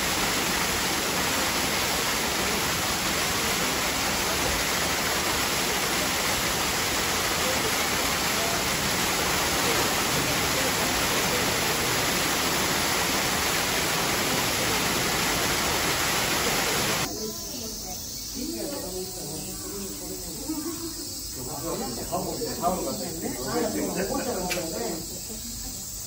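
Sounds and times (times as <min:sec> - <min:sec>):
water running: 0:00.0 - 0:17.1.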